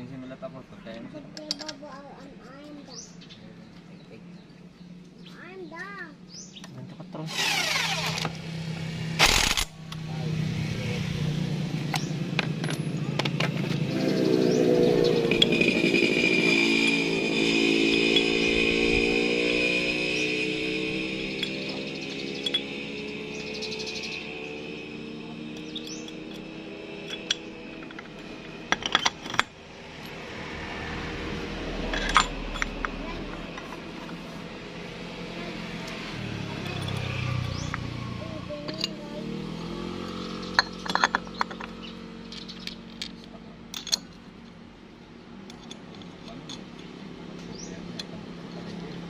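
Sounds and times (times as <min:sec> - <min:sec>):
metal parts clinking: 0:01.4 - 0:01.8, 0:20.5 - 0:24.6, 0:25.5 - 0:30.2, 0:31.8 - 0:34.2, 0:36.6 - 0:37.9, 0:38.6 - 0:39.0, 0:40.5 - 0:44.6, 0:45.4 - 0:47.1
impact wrench burst: 0:07.3 - 0:09.9
sharp metal clicks: 0:09.2 - 0:10.1, 0:25.6 - 0:30.2.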